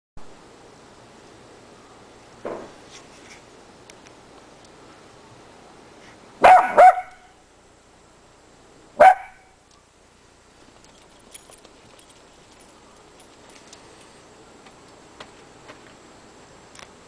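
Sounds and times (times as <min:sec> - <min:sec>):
dog barking: 0:06.4 - 0:07.3, 0:09.0 - 0:09.5.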